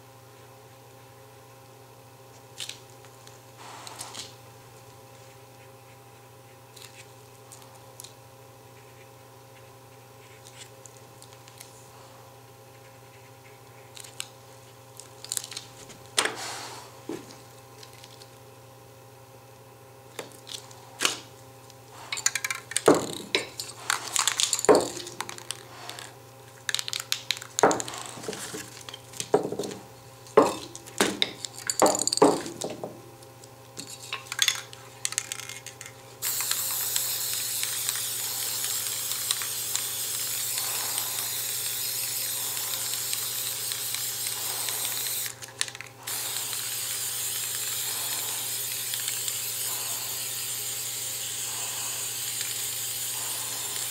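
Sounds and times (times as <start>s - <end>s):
aerosol spray can hissing: 3.6s - 4.3s, 36.2s - 45.4s, 46.0s - 53.9s.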